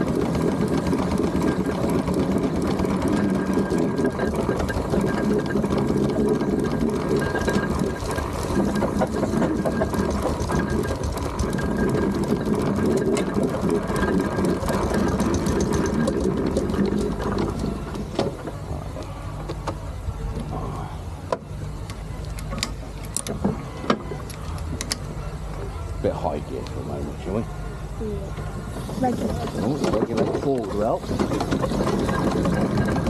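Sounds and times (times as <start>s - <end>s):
steam engine clattering: 0.0s - 20.8s, 21.7s - 33.0s
steady engine rumble: 0.0s - 33.0s.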